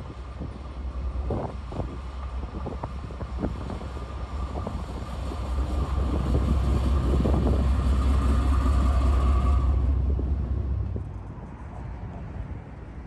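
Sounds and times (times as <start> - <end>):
steady whine: 0.0 - 11.8
diesel locomotive engine rumble: 0.0 - 13.0.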